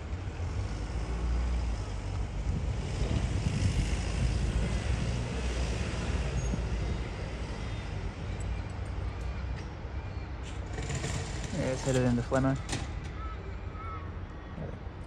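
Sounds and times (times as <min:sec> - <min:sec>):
electric train rumbling: 0:10.6 - 0:12.9.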